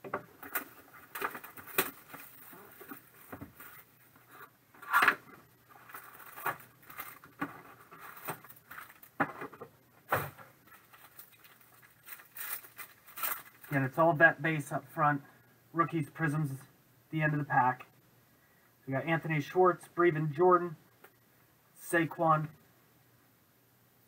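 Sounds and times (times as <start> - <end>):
foil packs rustling and crinkling: 0.3 - 4.1, 5.7 - 9.5, 10.6 - 13.8.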